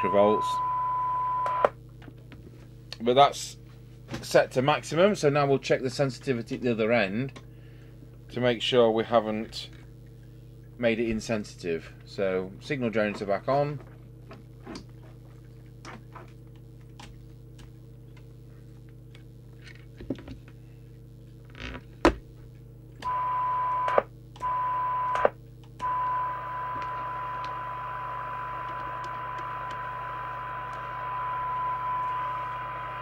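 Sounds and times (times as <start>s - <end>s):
steady test tone: 0.0s - 1.7s, 23.0s - 33.0s
radio speaker hum: 0.0s - 1.8s, 23.0s - 33.0s.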